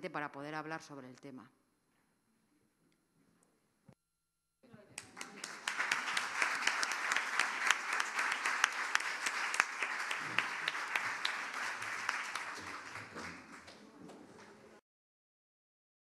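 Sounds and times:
audience applauding: 0:05.0 - 0:14.6.

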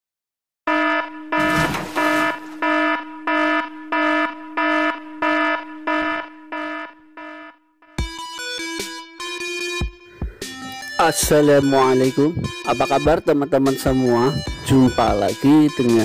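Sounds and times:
pulsing warning beep: 0:00.7 - 0:09.8, 0:10.8 - 0:16.0
music: 0:08.0 - 0:16.0.

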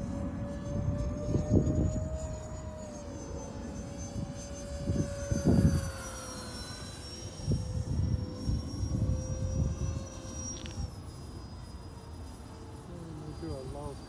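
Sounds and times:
wind buffeting microphone: 0:00.0 - 0:02.8, 0:03.8 - 0:11.0
electric ducted fans whining: 0:00.0 - 0:14.0.

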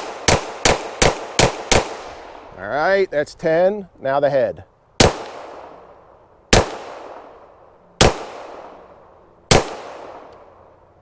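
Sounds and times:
pistol shots with echo: 0:00.0 - 0:02.5, 0:05.0 - 0:05.9, 0:06.5 - 0:07.4, 0:08.0 - 0:10.5.

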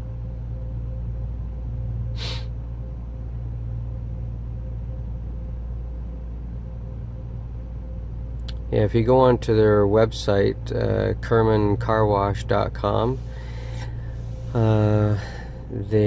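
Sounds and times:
dryer blowers humming: 0:00.0 - 0:16.0
short hiss of air: 0:02.2 - 0:02.5.

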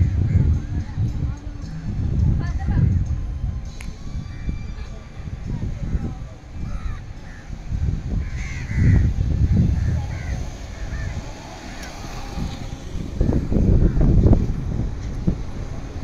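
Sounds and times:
wind rumble on microphone: 0:00.0 - 0:16.0
crows cawing: 0:06.6 - 0:07.6, 0:08.2 - 0:09.2, 0:09.8 - 0:11.9
car passing close by: 0:09.0 - 0:16.0.

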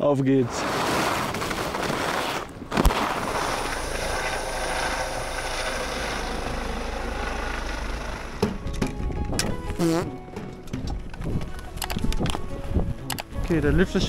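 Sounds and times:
helicopter running: 0:02.7 - 0:11.2.

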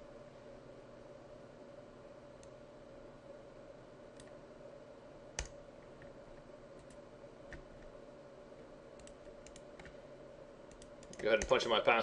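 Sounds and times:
steady hum: 0:00.0 - 0:12.0
computer mouse and keyboard clicks: 0:09.0 - 0:10.0.

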